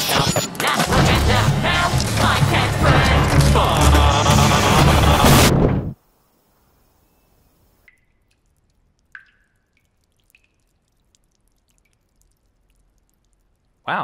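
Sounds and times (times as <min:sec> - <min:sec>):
faint drip-like plinks: 0:07.1 - 0:13.9.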